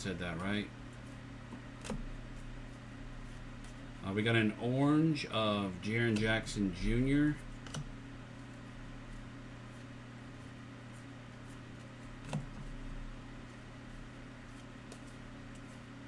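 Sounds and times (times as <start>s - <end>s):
steady low hum: 0.0s - 16.0s
trading cards clicking: 7.6s - 7.9s.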